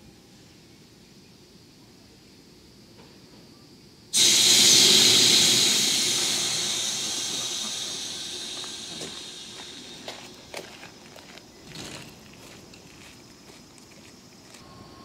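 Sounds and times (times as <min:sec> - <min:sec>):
compressed air hissing: 0:04.2 - 0:11.0.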